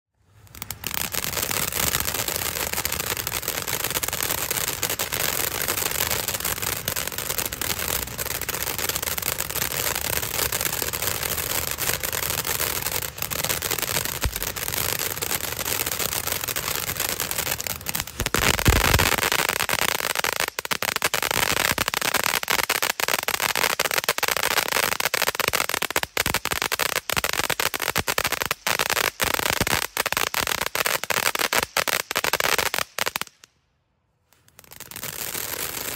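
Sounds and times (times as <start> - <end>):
firework deep burst: 0.2 - 22.4
firework crackling and hissing: 0.2 - 33.6, 34.2 - 35.9
rapid sharp pops: 11.1 - 22.4.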